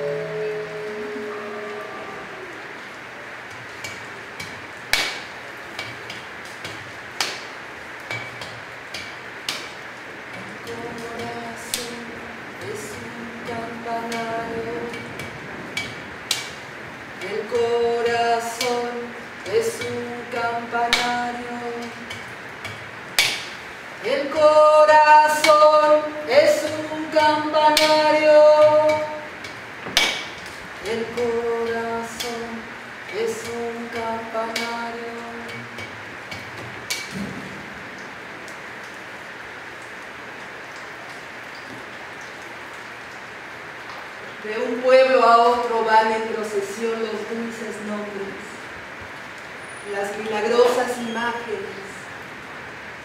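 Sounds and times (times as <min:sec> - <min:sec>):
woman singing unaccompanied: 0:00.0 - 0:04.0, 0:10.3 - 0:22.5, 0:23.2 - 0:30.1, 0:30.7 - 0:36.0, 0:44.4 - 0:48.7, 0:49.9 - 0:52.2
sharp knocks: 0:03.8 - 0:07.5, 0:19.8 - 0:23.6, 0:26.6 - 0:32.5, 0:35.4 - 0:37.8.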